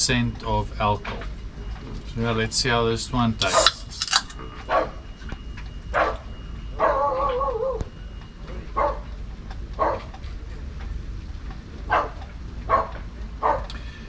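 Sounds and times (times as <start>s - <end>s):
dog barking: 4.7s - 5.0s, 6.0s - 7.8s, 8.8s - 9.1s, 9.8s - 10.1s, 11.9s - 13.7s
dog whining: 6.8s - 7.9s.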